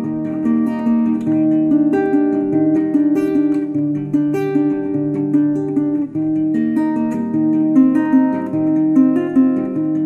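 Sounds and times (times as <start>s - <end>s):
acoustic guitar picking and strumming: 0.0s - 10.0s.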